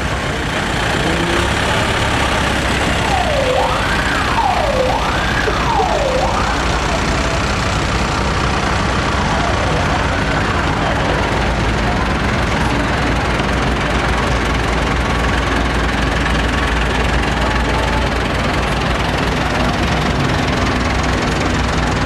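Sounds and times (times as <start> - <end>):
tractor engines running: 0.0 - 22.0
siren wailing: 1.0 - 7.5.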